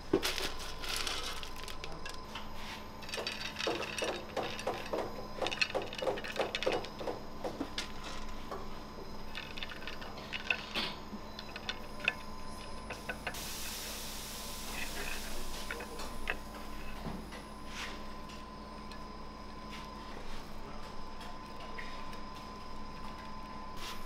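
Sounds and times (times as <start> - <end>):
nuts clicking on metal tray: 0.2 - 8.3, 9.3 - 13.4.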